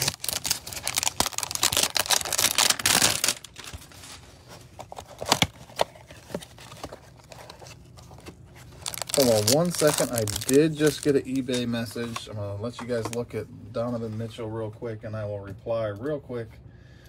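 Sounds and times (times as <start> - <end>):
packaging tearing: 0.0 - 4.1, 4.9 - 11.6.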